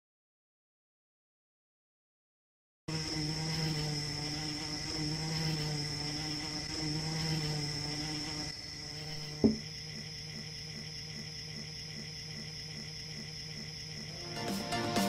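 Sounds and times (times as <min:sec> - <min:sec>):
high cricket trill: 0:02.9 - 0:15.0
insect buzzing: 0:02.9 - 0:15.0
sharp knock: 0:09.4 - 0:09.6.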